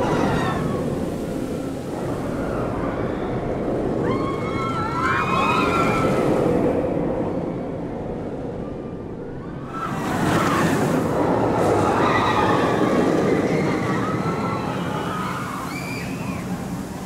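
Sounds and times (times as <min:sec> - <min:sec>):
roller coaster rushing roar: 0:00.0 - 0:17.0
riders screaming: 0:09.6 - 0:16.7.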